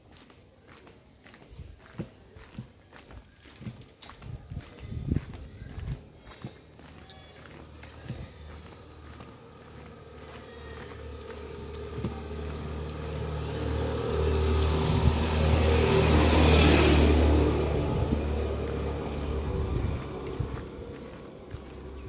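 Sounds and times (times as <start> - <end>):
motor vehicle driving past: 6.8 - 22.0.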